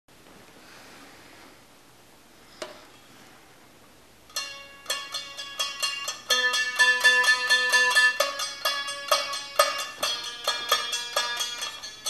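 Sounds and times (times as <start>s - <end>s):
one-string banjo plucked: 4.3s - 12.0s.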